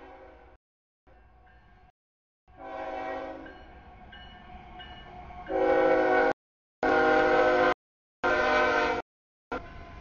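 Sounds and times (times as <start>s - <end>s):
locomotive horn chord: 2.5s - 3.5s, 5.5s - 9.6s.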